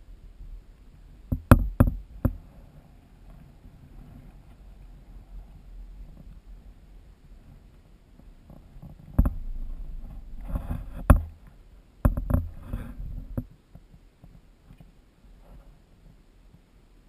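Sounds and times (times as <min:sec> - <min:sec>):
chairlift low rumble: 0:00.0 - 0:13.4.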